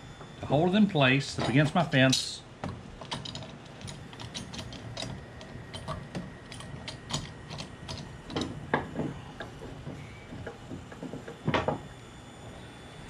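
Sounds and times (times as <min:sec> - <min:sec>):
bar clamps clicking: 0:03.0 - 0:09.5.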